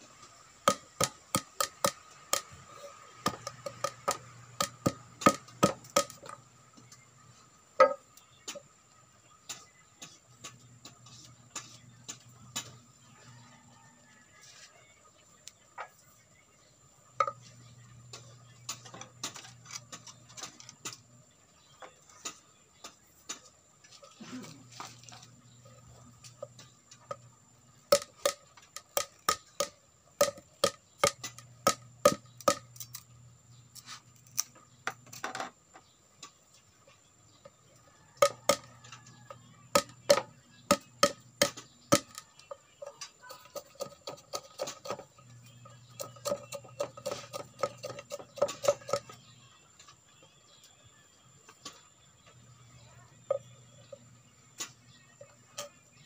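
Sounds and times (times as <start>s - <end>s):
knife whittling bamboo: 0.7s - 6.4s, 45.7s - 49.2s.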